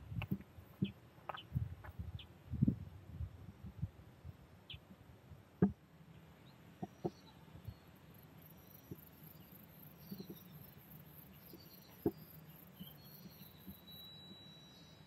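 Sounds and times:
distant bird chirps: 0:06.4 - 0:15.0.

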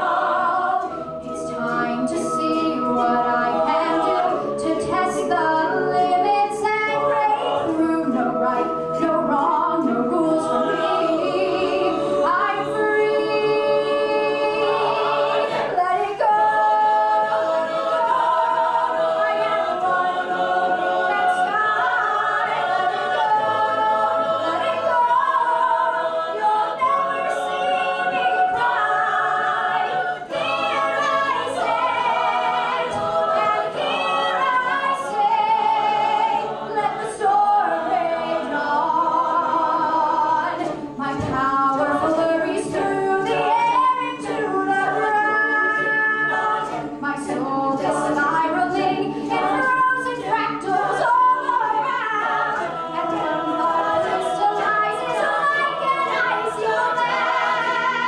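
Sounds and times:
backing voices singing: 0:00.0 - 0:58.0
female soloist singing: 0:24.4 - 0:58.0.

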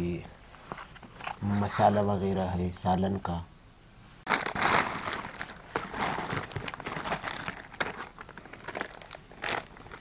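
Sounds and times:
plastic and foil bags crinkling: 0:04.3 - 0:10.0.

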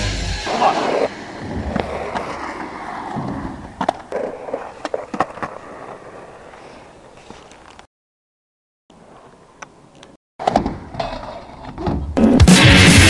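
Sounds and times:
skateboard wheels rolling on asphalt: 0:00.4 - 0:07.9, 0:08.9 - 0:11.8.

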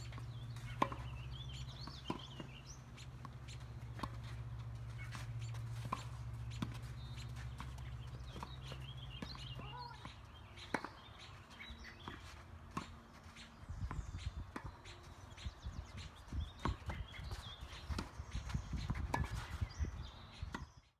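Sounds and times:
tennis ball knocks: 0:00.1 - 0:04.5.

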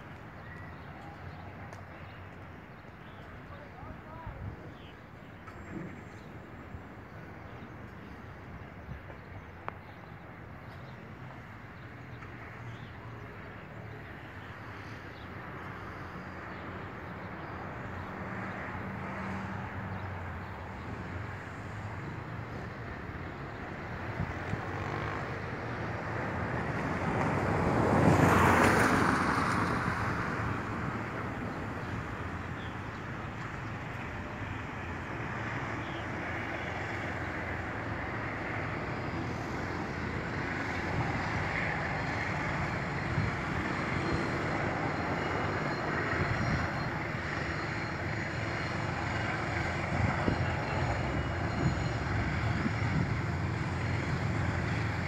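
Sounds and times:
outdoor background noise: 0:00.0 - 0:55.0
road vehicle passing: 0:13.9 - 0:55.0.

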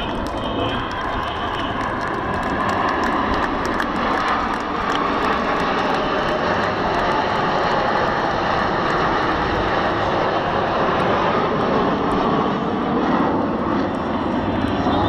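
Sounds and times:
jet engines flying past: 0:00.0 - 0:15.0.

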